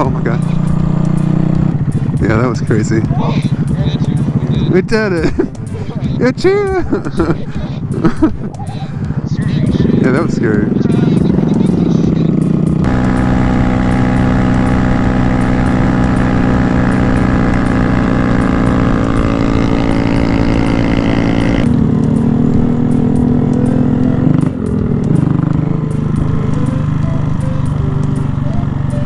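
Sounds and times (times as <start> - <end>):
motorcycle engine droning: 0.0 - 29.0.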